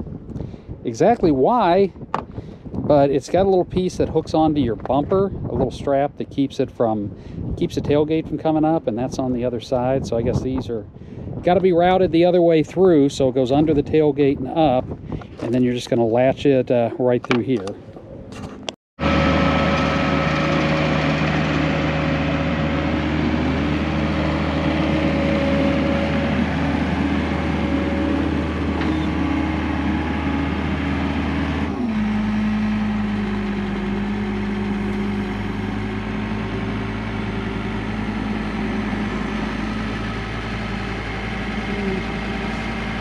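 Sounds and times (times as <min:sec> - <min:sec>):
loader diesel engine running: 0:19.0 - 0:43.0.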